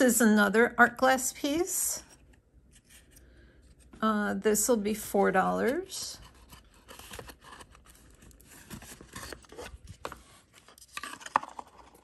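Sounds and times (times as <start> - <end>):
rustling and scraping of gift box: 2.0 - 4.0, 5.5 - 12.0.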